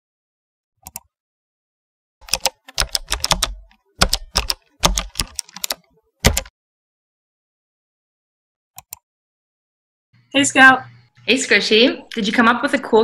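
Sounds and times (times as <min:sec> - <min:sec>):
keyboard typing: 0:00.8 - 0:01.1, 0:02.2 - 0:06.5, 0:08.8 - 0:09.0.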